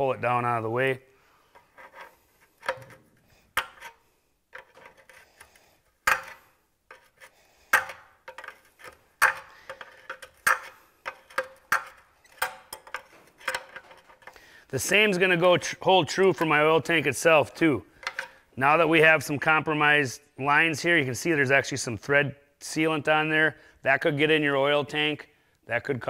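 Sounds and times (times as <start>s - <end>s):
wrench clinking on metal: 6.1s - 14.4s, 18.0s - 18.4s.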